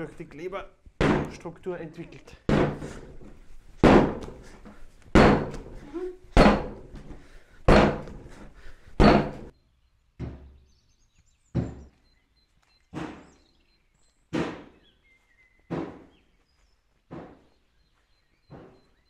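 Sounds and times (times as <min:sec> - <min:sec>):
faint bird chirps: 0:09.5 - 0:19.0.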